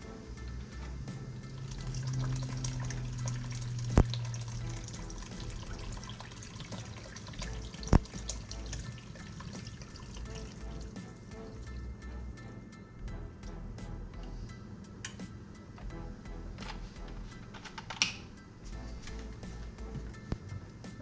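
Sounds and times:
liquid pouring and splashing: 1.6s - 11.7s.

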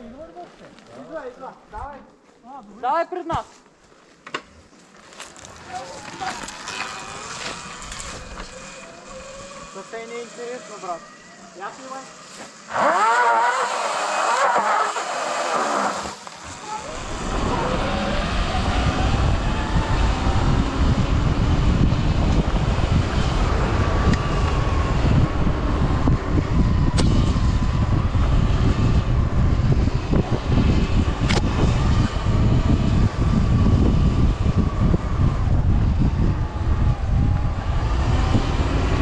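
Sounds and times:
electric motor whine: 5.5s - 39.0s
heavy rumble: 15.9s - 39.0s
wind on microphone: 16.4s - 39.0s.

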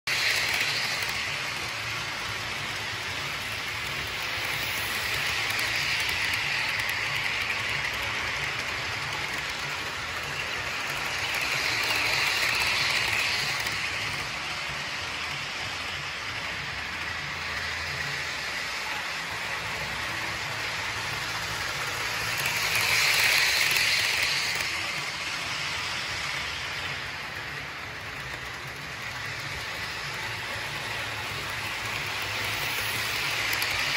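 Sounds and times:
model train wheels rattling: 0.1s - 33.9s.

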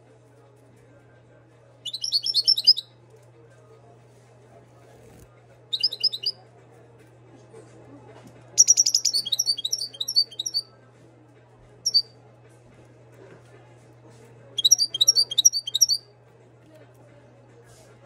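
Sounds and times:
goldfinch singing: 1.9s - 2.9s, 5.7s - 6.3s, 8.6s - 10.6s, 14.6s - 16.0s.

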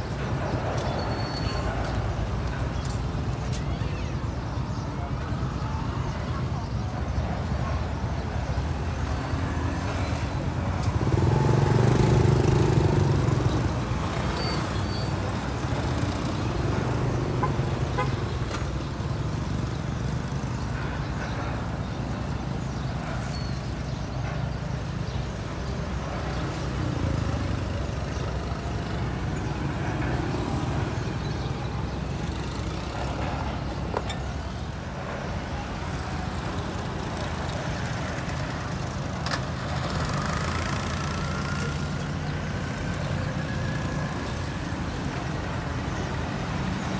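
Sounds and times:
rumble of passing vehicles: 0.0s - 46.9s
loud vehicle passing: 9.4s - 14.3s.

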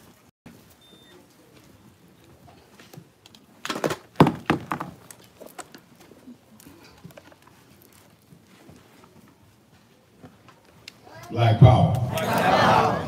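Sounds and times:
knocks and thumps: 3.7s - 5.0s.

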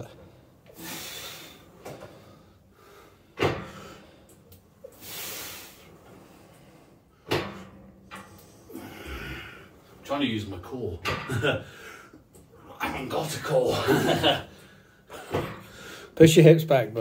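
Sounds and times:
weight stack clunking: 1.8s - 5.1s, 6.1s - 9.6s, 10.8s - 12.6s, 14.1s - 15.9s
breathy hiss: 5.0s - 6.8s.

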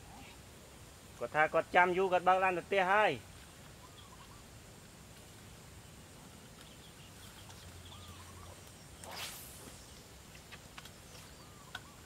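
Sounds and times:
faint bird chirps: 3.7s - 4.5s, 5.7s - 12.0s
fishing rod whoosh: 9.0s - 10.0s.

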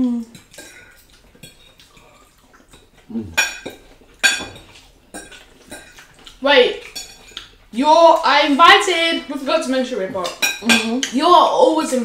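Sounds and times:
forks clinking on plates: 3.4s - 6.2s, 6.8s - 7.6s, 10.3s - 11.2s.

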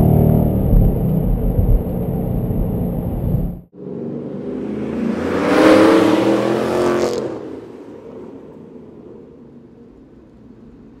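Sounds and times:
low noisy rumble: 0.0s - 5.2s.

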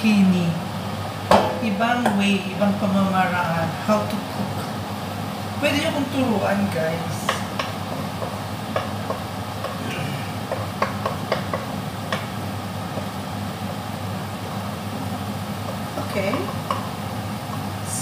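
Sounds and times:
steady low hum: 0.0s - 18.0s
garlic and onion sizzling in wok: 0.1s - 18.0s
spatula knocking against pan: 7.3s - 9.8s, 10.4s - 13.1s, 15.6s - 16.9s.

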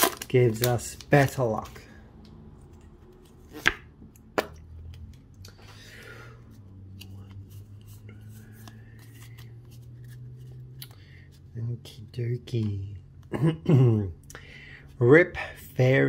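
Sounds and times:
cards sliding and ticking: 6.4s - 11.5s.

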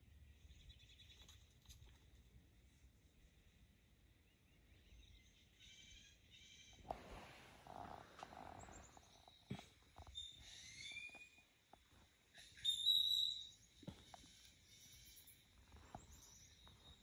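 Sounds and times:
birds chirping and whistling: 7.8s - 11.4s, 12.4s - 17.0s.

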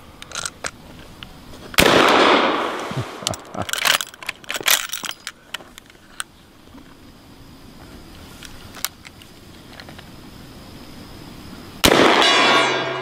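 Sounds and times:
rifle shot echoing: 1.8s - 3.2s, 11.8s - 13.0s
rifle action metallic clicks: 3.2s - 6.3s.

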